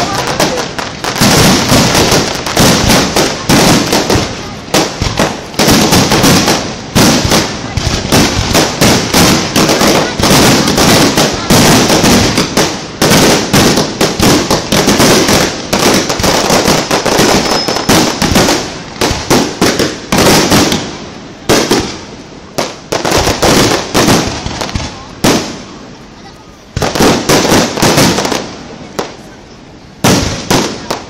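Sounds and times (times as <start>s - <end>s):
firework shells bursting: 0.0s - 20.9s.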